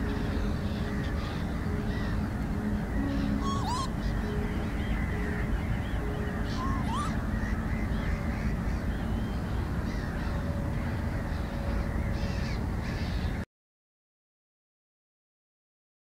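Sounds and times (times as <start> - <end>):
low background rumble: 0.0 - 13.4
wild birds chirping: 0.0 - 13.4
rising whistled bird call: 3.0 - 4.6, 5.2 - 7.6.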